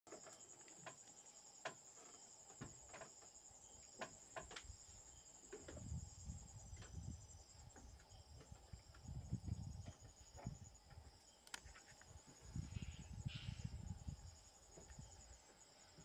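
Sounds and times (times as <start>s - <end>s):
high-pitched insect trill: 0.1s - 16.0s
sharp clicks: 11.4s - 11.8s.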